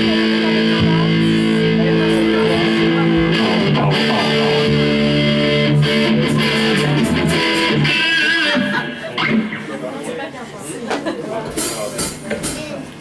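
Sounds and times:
electric bass: 0.0 - 9.8
electric guitar chords: 0.0 - 10.0.

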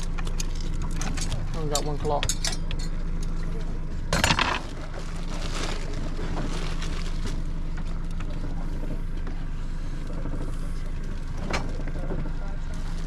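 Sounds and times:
boat motor humming: 0.0 - 13.0
loud clatter: 4.1 - 4.8.

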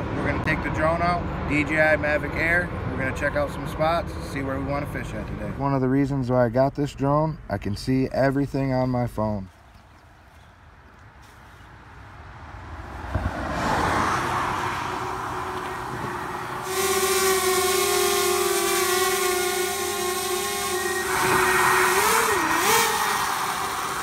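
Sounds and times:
drone propellers whining: 14.8 - 24.0.

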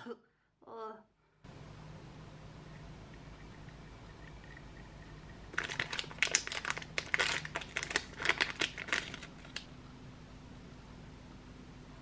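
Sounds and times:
plastic crinkling and clicking: 5.5 - 9.7.

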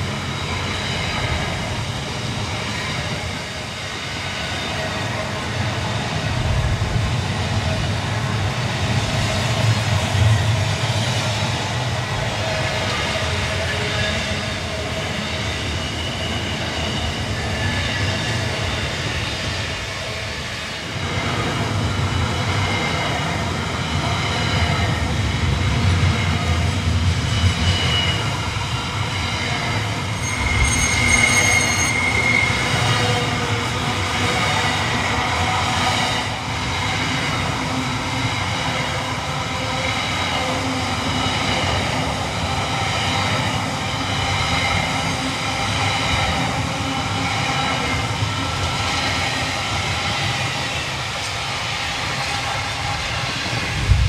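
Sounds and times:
train wheels rumbling on rails: 0.0 - 54.0
high ringing wheel squeal: 12.8 - 21.1, 25.7 - 53.6.

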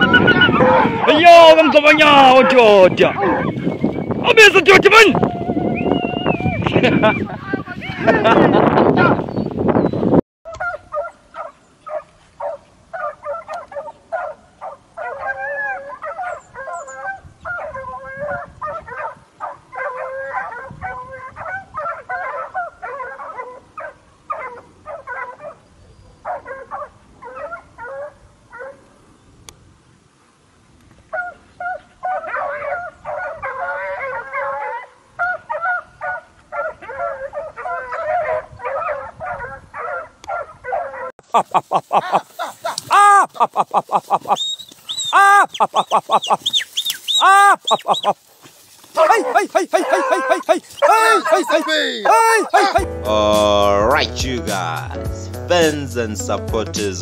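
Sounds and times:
dogs yelping and barking: 0.0 - 4.2, 10.5 - 28.9, 31.1 - 41.2, 42.0 - 43.3, 44.0 - 48.3, 48.9 - 52.8.

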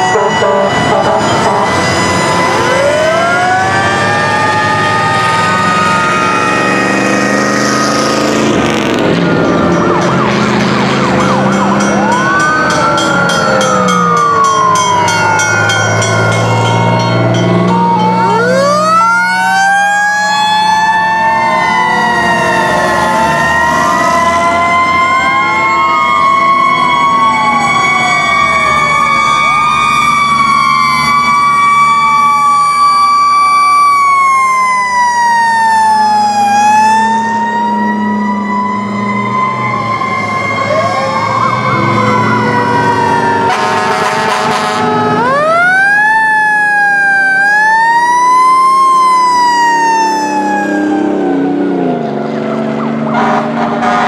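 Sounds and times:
fire engine sirens wailing: 0.0 - 54.0
truck engines rumbling: 0.0 - 54.0
short loud horn blast: 43.5 - 45.0, 53.1 - 54.0.

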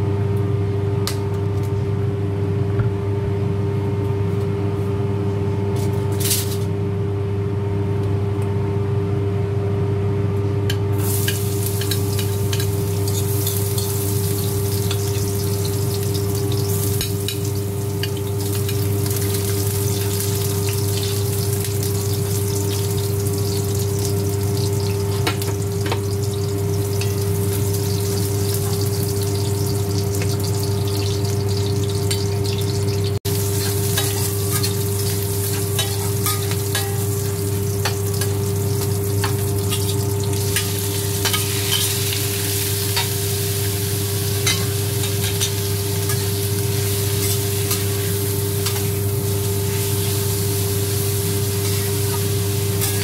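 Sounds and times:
food sizzling in hot oil: 11.0 - 53.0.

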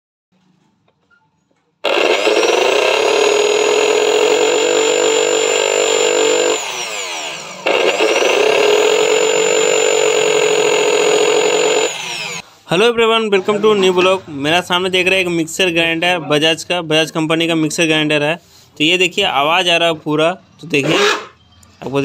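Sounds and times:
mixer grinder motor whining: 1.8 - 12.4.

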